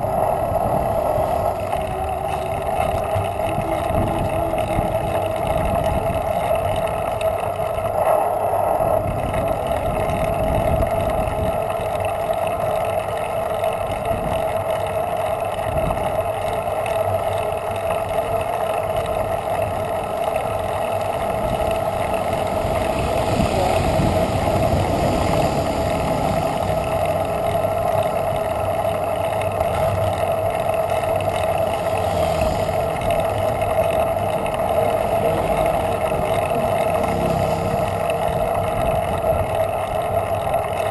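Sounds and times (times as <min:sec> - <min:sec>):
wind noise: 0:00.0 - 0:07.2, 0:08.7 - 0:11.8
bicycle road rumble: 0:00.0 - 0:40.9.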